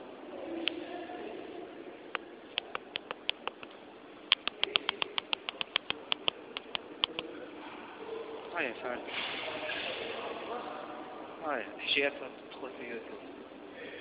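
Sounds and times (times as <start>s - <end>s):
sharp clicks: 2.1s - 3.7s, 4.3s - 7.2s.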